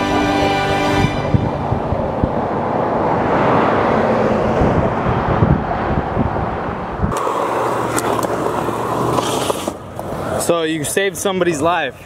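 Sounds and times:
skateboard rolling on asphalt: 1.6 - 11.2
skateboard rolling on smooth concrete: 5.7 - 11.6.

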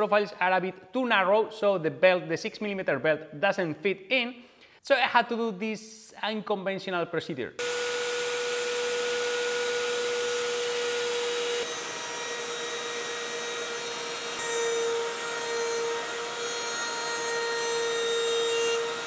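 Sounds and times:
router whining milling aluminium: 7.6 - 19.0.

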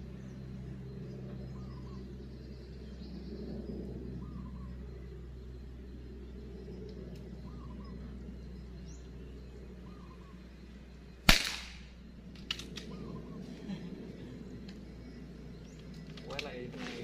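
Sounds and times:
air rifle shot: 11.3 - 12.0.

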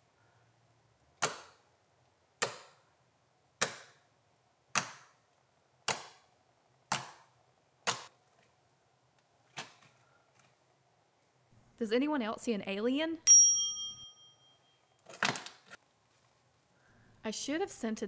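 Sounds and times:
fingertips popping slime: 5.8 - 6.3.

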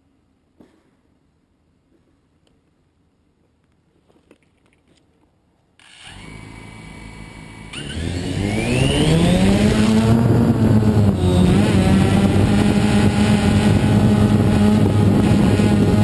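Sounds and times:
quadcopter motors whirring: 5.8 - 16.0.

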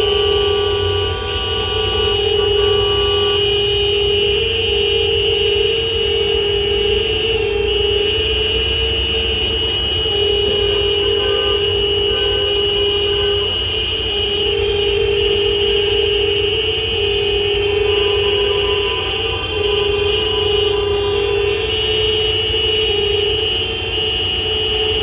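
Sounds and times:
vehicle horns blasting: 0.0 - 25.0.

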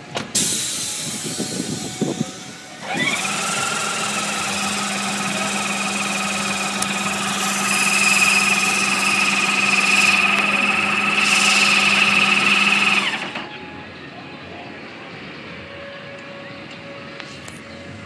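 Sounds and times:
small motor whining: 1.2 - 13.5.

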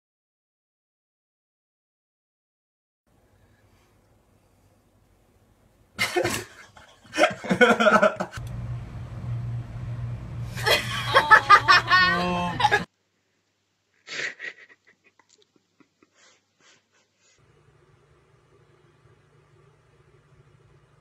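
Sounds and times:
steady hum: 3.1 - 12.9, 17.4 - 21.0.

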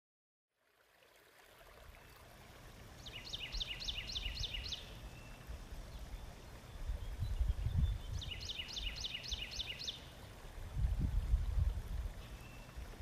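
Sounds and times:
low rumble and hiss: 0.7 - 13.0
songbird whistling: 3.0 - 5.4, 6.7 - 10.1.

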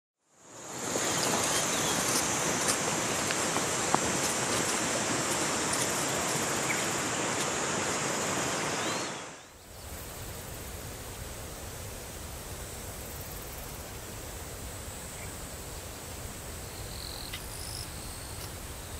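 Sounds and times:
high insect drone: 0.3 - 18.9
mountain stream rushing: 0.3 - 18.9
faint bird chirps: 8.8 - 9.8.

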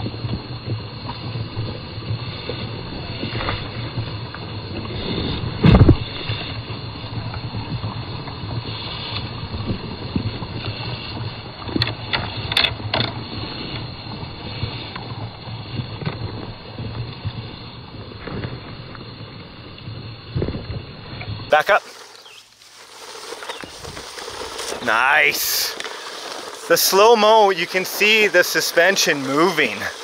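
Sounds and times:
toy truck motors and gears: 21.5 - 30.0.

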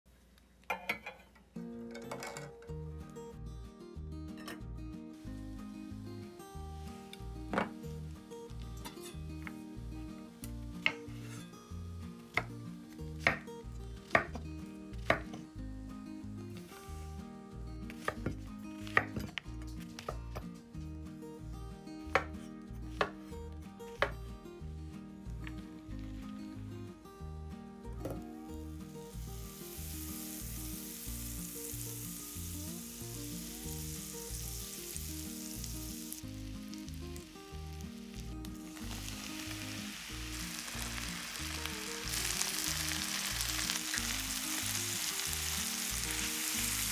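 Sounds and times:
background music: 1.5 - 46.9
knife chopping on cutting board: 14.1 - 14.4, 15.1 - 15.4, 17.9 - 19.3, 22.1 - 22.3
butter sizzling in frying pan: 28.8 - 46.9.

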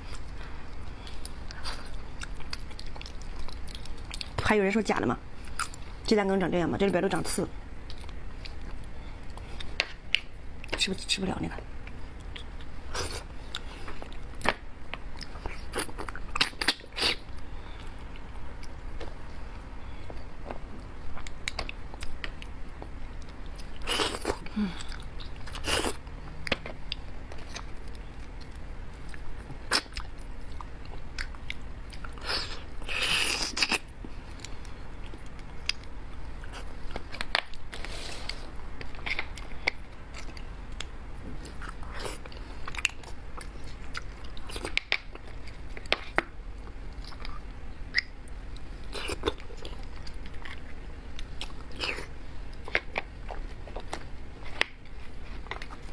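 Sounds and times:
chewing and biting bones: 1.1 - 4.4, 38.6 - 55.9.

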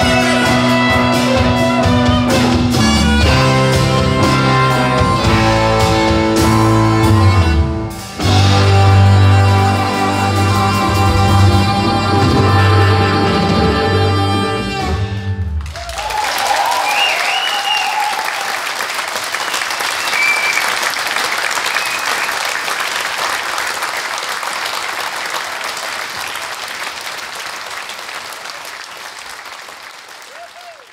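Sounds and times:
rock jazz band playing: 0.0 - 15.7
audience whooping: 15.6 - 26.9, 27.7 - 30.9
audience applauding: 15.6 - 30.9.

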